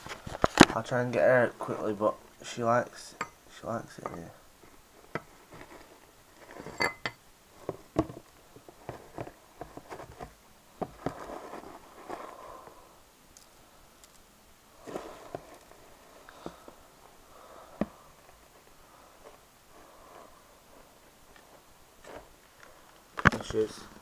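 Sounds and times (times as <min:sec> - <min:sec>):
small knocks: 0:06.4 - 0:12.2.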